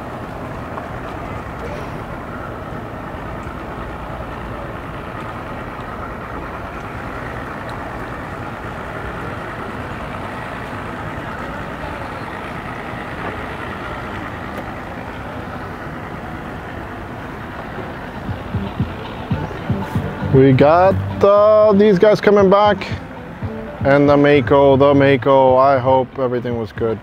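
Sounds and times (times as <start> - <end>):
outboard motors idling: 0.0 - 27.0
water wash: 0.0 - 27.0.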